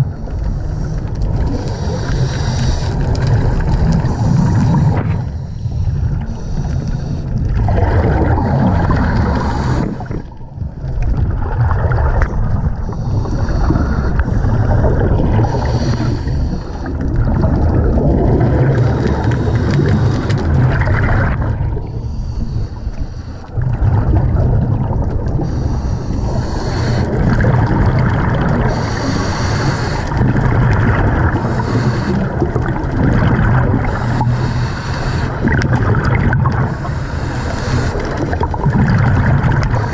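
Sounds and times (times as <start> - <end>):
gurgling exhaled bubbles: 0.0 - 39.9
regulator hissing inhalations: 1.6 - 3.0, 9.1 - 10.1, 12.9 - 17.0, 25.4 - 27.1, 28.7 - 30.1, 31.4 - 32.4, 33.9 - 35.4, 36.7 - 38.2.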